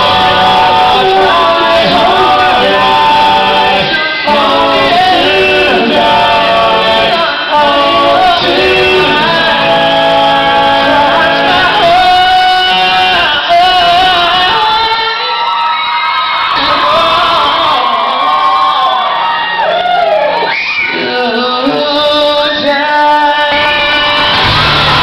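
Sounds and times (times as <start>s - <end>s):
lead vocal singing: 0.0s - 19.0s, 20.8s - 25.0s
rock band playing live: 23.5s - 25.0s.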